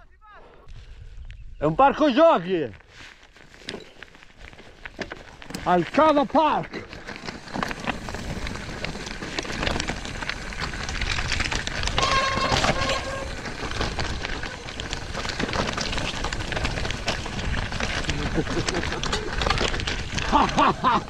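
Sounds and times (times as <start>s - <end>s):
wind noise on microphone: 0.7s - 1.6s
tyres crunching over stones: 1.9s - 21.0s
bike rattling: 2.9s - 21.0s.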